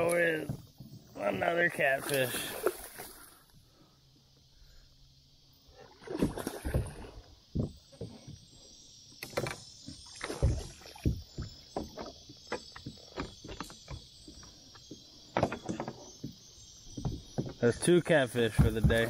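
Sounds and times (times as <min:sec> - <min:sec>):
handling knocks and bumps: 0:18.4 - 0:19.0.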